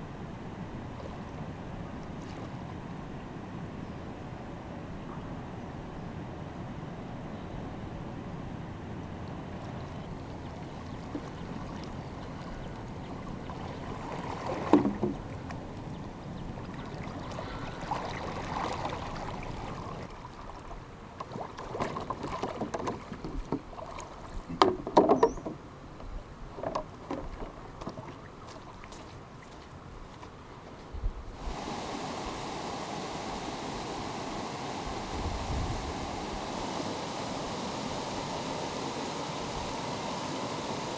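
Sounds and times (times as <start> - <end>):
stream water running: 0.0 - 4.6, 8.4 - 40.9.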